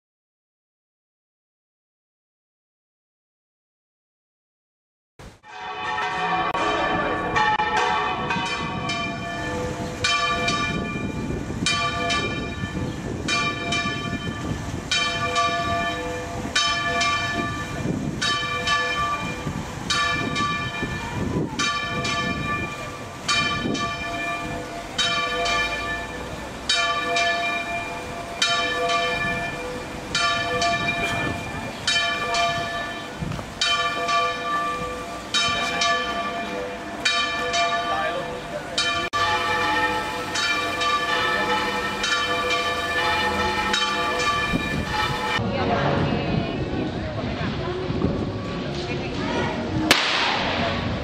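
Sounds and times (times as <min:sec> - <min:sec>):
church bell tolling: 0:05.4 - 0:46.0.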